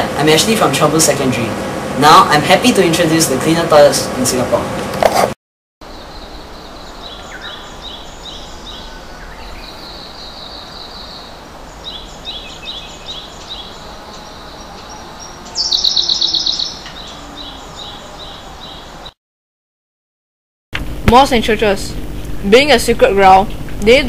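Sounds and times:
songbirds singing: 5.8s - 19.2s.

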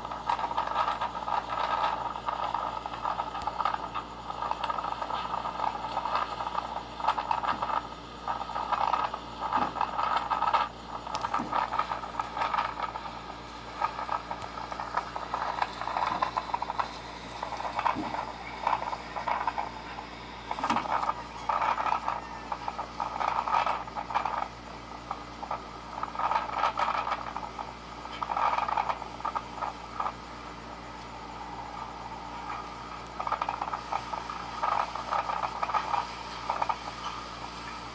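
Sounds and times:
strong wind rattling and crackling: 0.0s - 30.2s.

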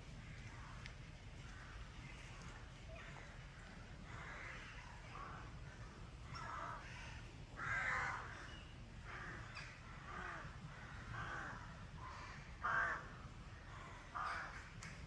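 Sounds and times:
crows cawing: 4.1s - 5.4s, 6.3s - 14.7s.

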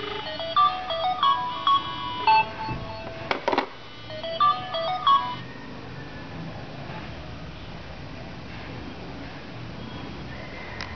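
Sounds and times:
electronic phone ringtone: 0.0s - 5.6s
phone handset clattering onto cradle: 3.3s - 3.7s.

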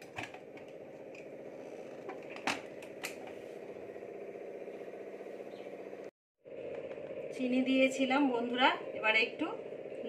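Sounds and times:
steady background hum: 0.0s - 10.0s.

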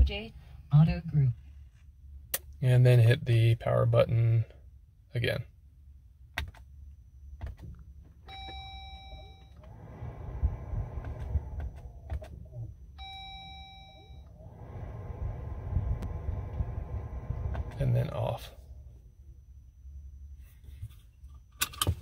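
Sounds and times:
dashboard chime dinging: 8.3s - 9.5s, 13.0s - 14.3s
low rumble: 8.3s - 20.3s.

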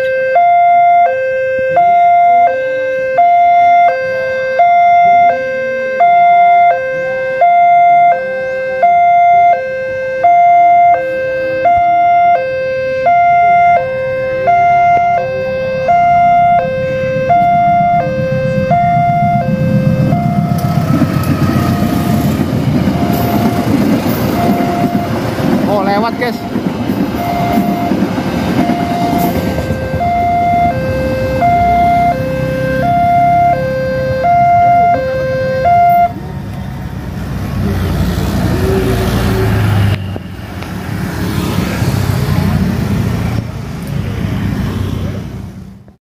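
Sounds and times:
level crossing alarm two-tone chime: 0.0s - 20.6s, 23.0s - 25.2s, 27.2s - 28.0s, 28.6s - 36.2s
train rumbling: 15.3s - 45.8s.

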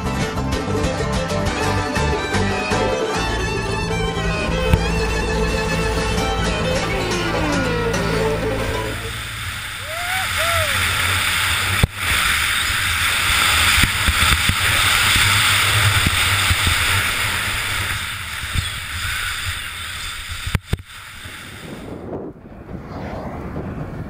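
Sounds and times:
skis hissing over snow: 7.9s - 22.0s
wind rushing over microphone: 8.4s - 24.0s.

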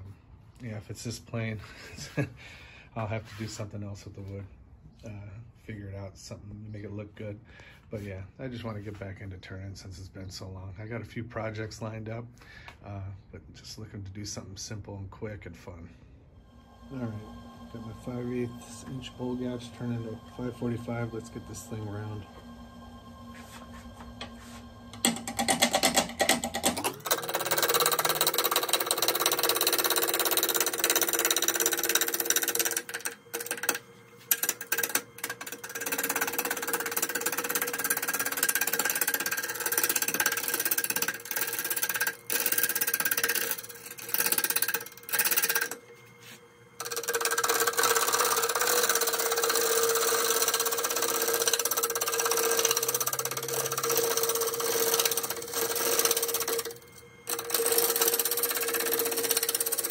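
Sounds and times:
lathe hum: 16.4s - 59.9s
gouge cutting wood on lathe: 16.5s - 59.9s.

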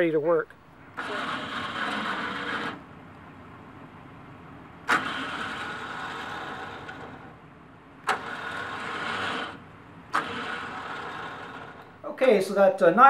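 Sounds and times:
electric winch motor running: 0.9s - 2.9s, 4.8s - 7.4s, 8.0s - 12.0s.

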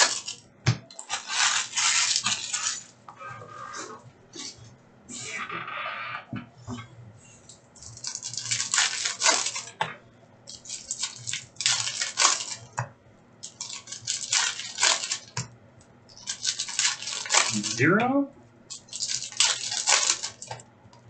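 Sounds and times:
foil wrapper crinkling and tearing: 0.0s - 2.8s, 7.9s - 9.8s, 10.5s - 12.8s, 13.4s - 15.4s, 16.1s - 17.8s, 18.7s - 20.6s.

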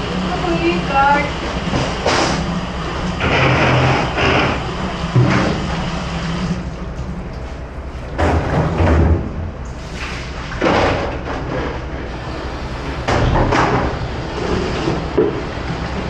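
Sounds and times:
plastic buckets clattering in sink: 8.2s - 9.4s.

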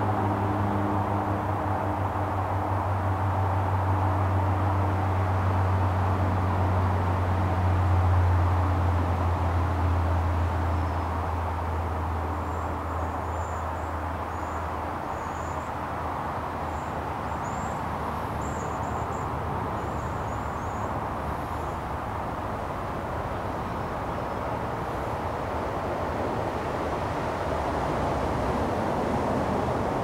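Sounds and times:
rushing background noise: 0.0s - 30.0s.

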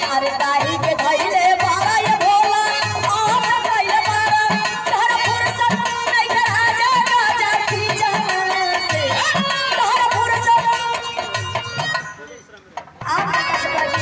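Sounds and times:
woman singing through microphone: 0.0s - 12.0s, 13.0s - 14.0s
instrumental accompaniment: 0.0s - 14.0s
hand drum beat: 12.8s - 14.0s.

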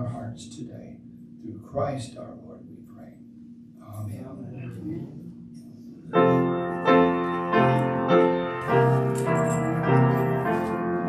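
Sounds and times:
slow piano chords: 6.0s - 11.0s.

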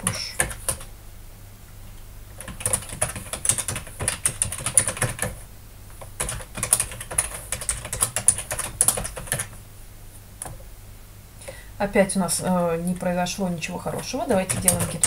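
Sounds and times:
typing on computer keyboard: 0.0s - 0.9s, 2.4s - 5.4s, 6.2s - 9.6s, 14.3s - 15.0s.

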